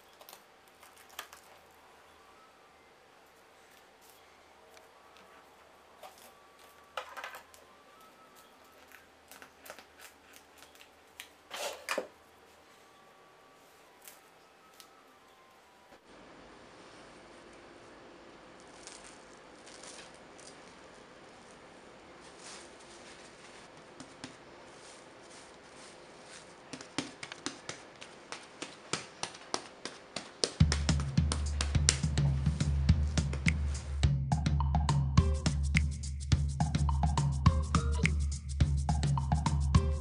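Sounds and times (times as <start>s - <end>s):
cling wrap crackling: 0.0s - 1.9s, 3.6s - 11.8s, 18.6s - 34.0s
hands slapping bread dough: 24.0s - 24.4s, 26.6s - 33.7s.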